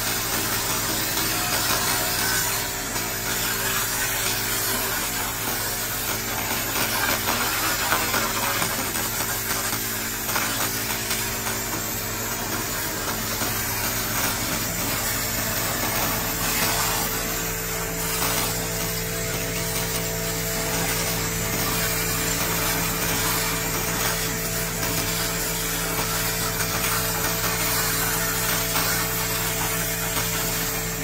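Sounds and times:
laser cleaner fizzing hiss: 0:00.0 - 0:31.0.

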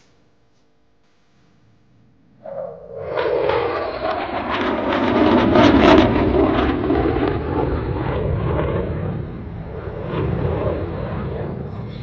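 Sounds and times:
crackling jet noise: 0:01.0 - 0:12.0.

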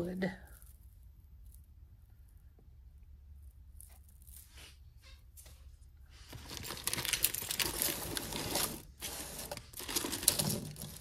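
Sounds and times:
plastic bag crinkling: 0:06.3 - 0:11.0.

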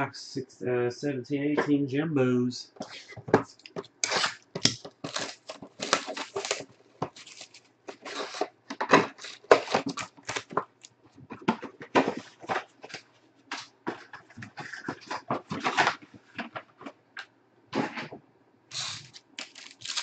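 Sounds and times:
foil crinkling: 0:03.8 - 0:10.9, 0:18.7 - 0:20.0
cardboard tearing: 0:04.0 - 0:10.6, 0:18.7 - 0:20.0.

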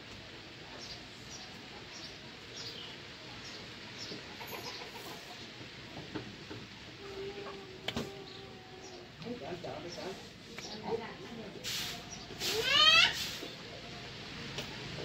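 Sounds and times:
birds chirping: 0:00.7 - 0:05.5, 0:08.1 - 0:11.2
bird clucking calls: 0:04.0 - 0:05.5.

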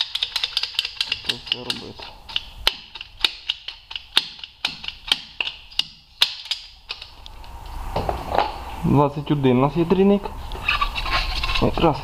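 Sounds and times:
ratcheting hose cutter clicking: 0:00.0 - 0:07.2.

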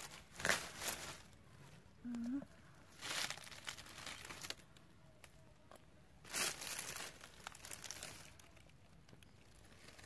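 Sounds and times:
dry leaves crackling: 0:00.0 - 0:01.4, 0:02.8 - 0:04.8, 0:06.2 - 0:10.0.

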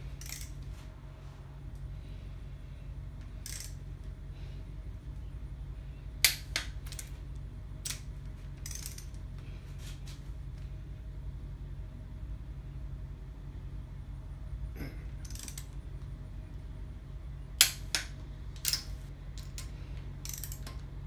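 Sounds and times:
steady low hum: 0:00.0 - 0:21.0
metallic clicks and clinks: 0:00.1 - 0:00.6, 0:03.4 - 0:03.8, 0:07.8 - 0:09.2, 0:15.2 - 0:15.8, 0:17.6 - 0:20.9.

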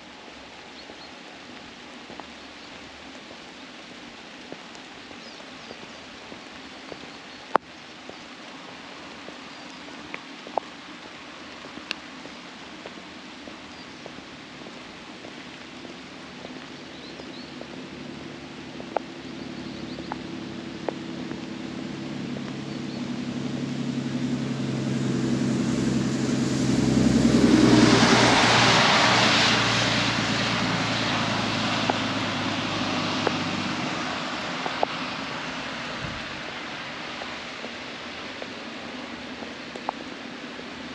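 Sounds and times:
vehicle engine hum: 0:14.8 - 0:40.9.

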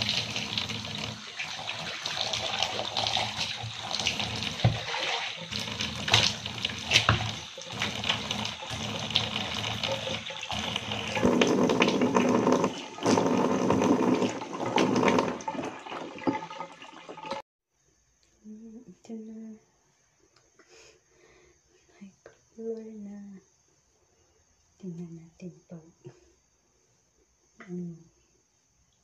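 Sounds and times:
water running from faucet: 0:00.0 - 0:17.4.

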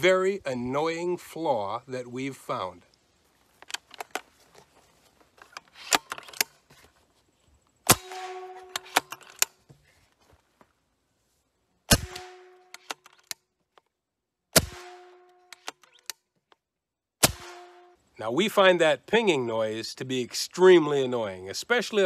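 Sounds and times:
rifle handling clicks: 0:03.6 - 0:04.3, 0:12.7 - 0:13.9
air rifle shot crack: 0:07.9 - 0:09.1, 0:11.9 - 0:12.6, 0:14.6 - 0:15.1, 0:17.2 - 0:17.8
metallic ping ringing: 0:08.0 - 0:08.9.

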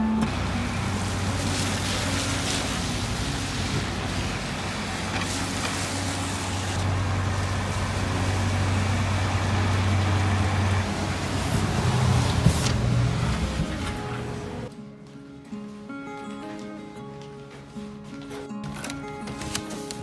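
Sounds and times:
low engine hum: 0:00.0 - 0:14.7
passing vehicles on wet road: 0:00.0 - 0:14.7.

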